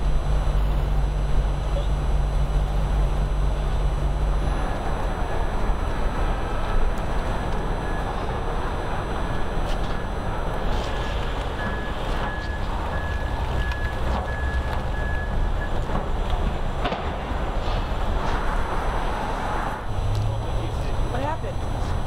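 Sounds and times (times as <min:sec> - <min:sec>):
low rumble of traffic: 0:00.0 - 0:22.0
high electronic beep: 0:09.3 - 0:15.8.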